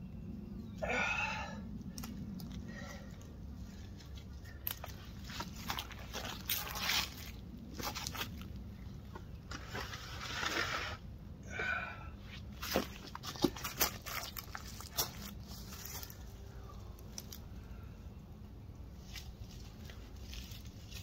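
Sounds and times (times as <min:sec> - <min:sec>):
low background hum: 0:00.0 - 0:21.0
plastic pots rustling and clicking: 0:12.6 - 0:16.2.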